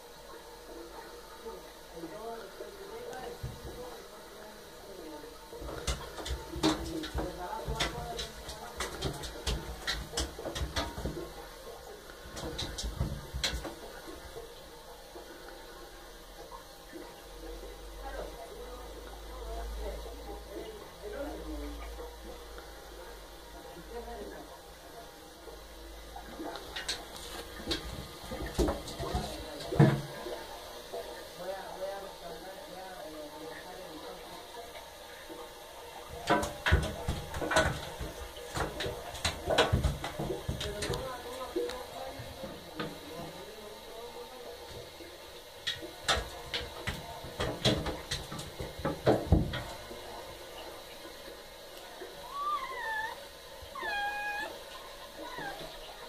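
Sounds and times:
kitten claws clicking on bathtub: 0:05.6 - 0:11.4
kitten paws knocking on bathtub: 0:05.6 - 0:11.4, 0:36.1 - 0:43.0.

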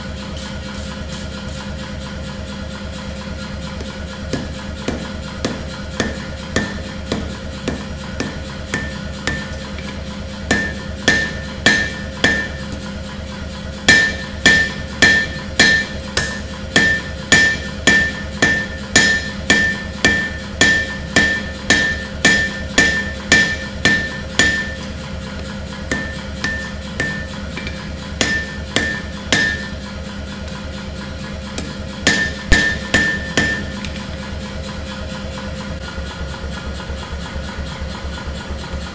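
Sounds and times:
steady hum: 0:02.4 - 0:35.8
hammer ringing on anvil: 0:04.3 - 0:12.9, 0:13.9 - 0:25.0, 0:25.8 - 0:30.0, 0:31.6 - 0:34.0.

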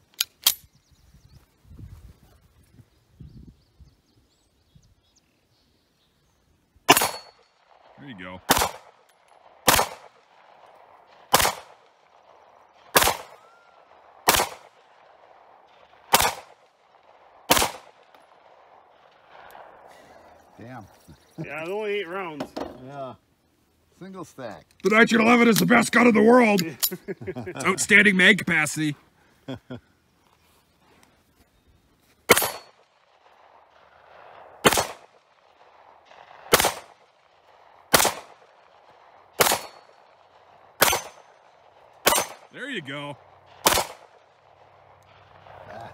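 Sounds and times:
pistol shots: 0:06.9 - 0:19.7, 0:32.3 - 0:42.5, 0:43.5 - 0:45.7.

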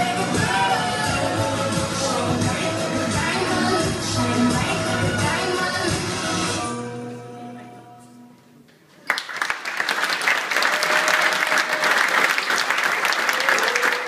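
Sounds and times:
music: 0:00.0 - 0:08.7
audience applauding: 0:09.0 - 0:14.0.

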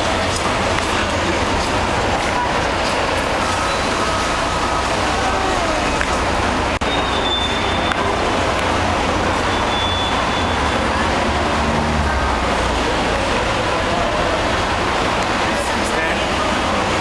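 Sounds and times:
bus rumbling: 0:00.0 - 0:17.0
city street traffic: 0:00.0 - 0:17.0
faint high squeals: 0:06.8 - 0:08.1.

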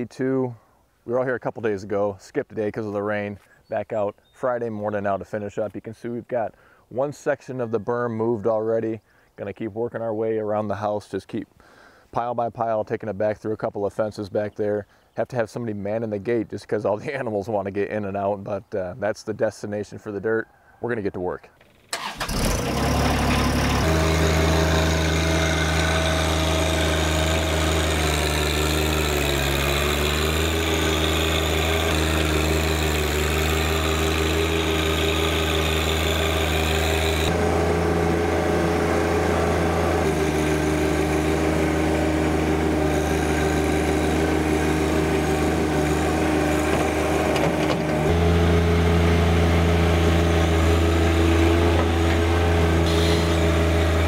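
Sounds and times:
tractor diesel engine running: 0:22.0 - 0:54.0.

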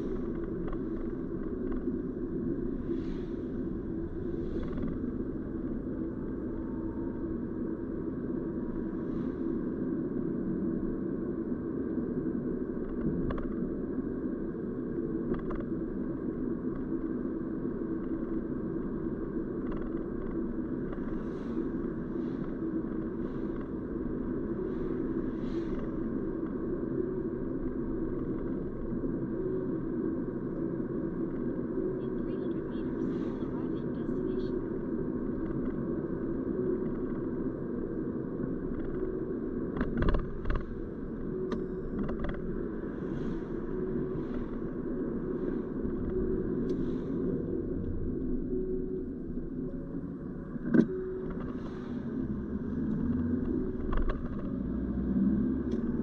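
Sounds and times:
car driving road noise: 0:00.0 - 0:14.2, 0:18.0 - 0:56.0
faint clicks and knocks: 0:00.1 - 0:01.9, 0:19.6 - 0:21.2, 0:39.7 - 0:40.8, 0:41.5 - 0:42.4, 0:52.9 - 0:54.6.

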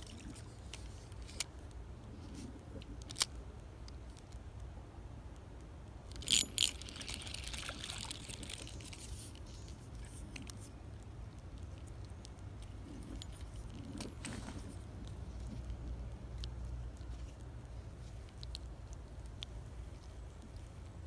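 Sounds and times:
handling noises: 0:06.1 - 0:21.0.

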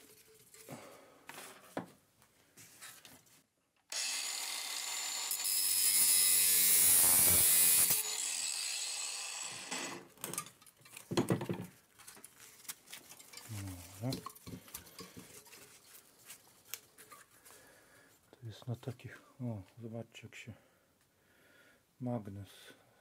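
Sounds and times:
power tool cutting metal: 0:03.9 - 0:10.1.

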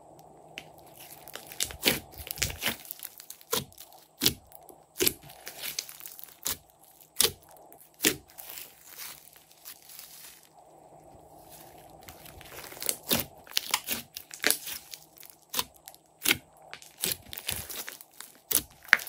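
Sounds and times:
slime popping and crackling: 0:00.6 - 0:10.5, 0:11.1 - 0:19.0.

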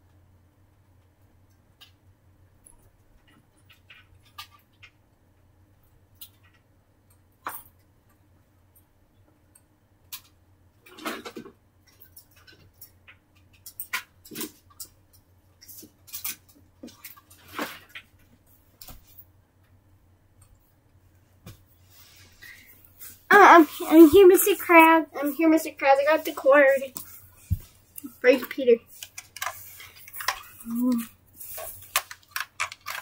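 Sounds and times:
faint steady hum: 0:00.0 - 0:33.0
rustles and scrapes: 0:15.6 - 0:19.3, 0:21.2 - 0:33.0.

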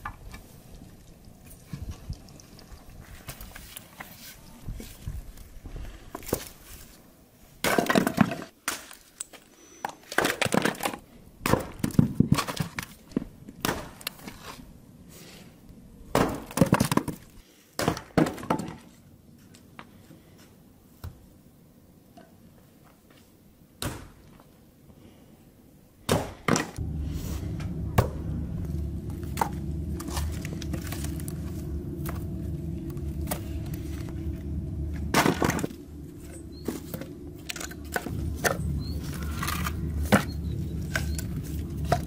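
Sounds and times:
axe chopping wood: 0:11.4 - 0:12.6, 0:13.6 - 0:14.0, 0:16.1 - 0:17.1, 0:26.1 - 0:26.8.

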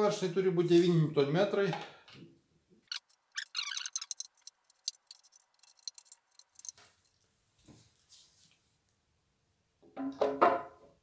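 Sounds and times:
torque wrench ratcheting clicks: 0:02.9 - 0:06.8.

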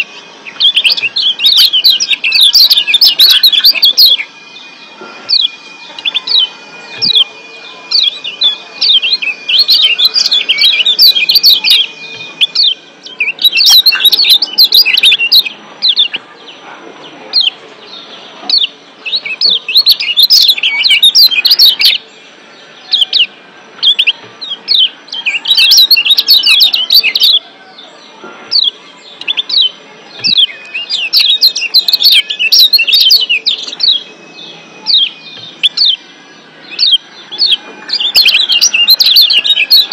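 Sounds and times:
white-eye sharp chirps: 0:00.0 - 0:16.3, 0:28.5 - 0:39.9.

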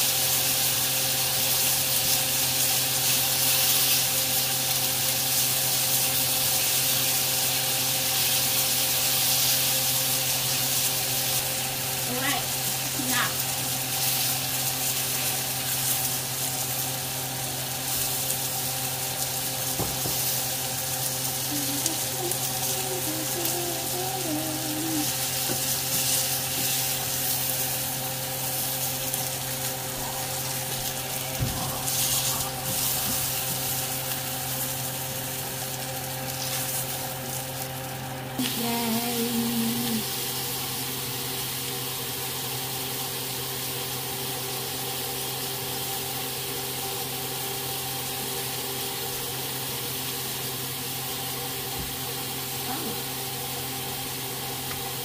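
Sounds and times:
steaks sizzling in a pan: 0:00.0 - 0:55.0
steady low hum: 0:11.0 - 0:41.7.

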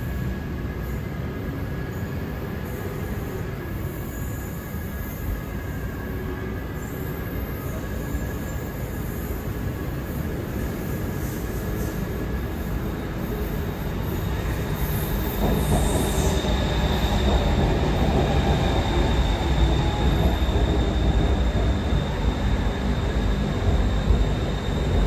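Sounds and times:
train wheels rumbling: 0:10.7 - 0:25.0.

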